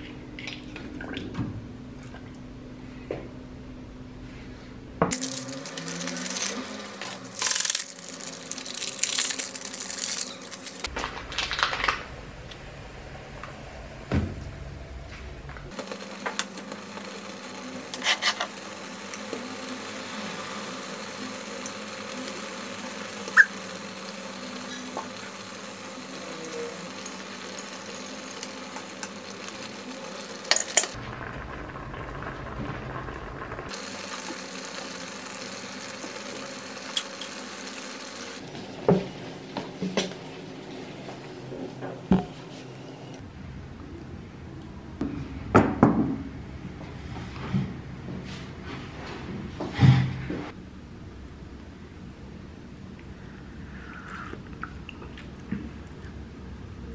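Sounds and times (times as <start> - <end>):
food simmering in a saucepan: 15.7 - 39.3
utensils clinking against pot: 30.5 - 31.0.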